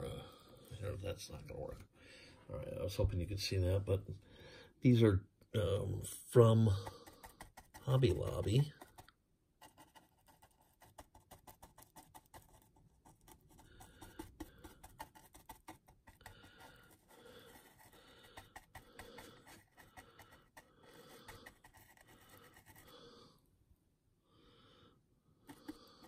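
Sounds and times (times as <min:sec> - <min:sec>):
bristle brush scratching and dabbing: 0:06.4 - 0:23.0, 0:25.5 - 0:26.0.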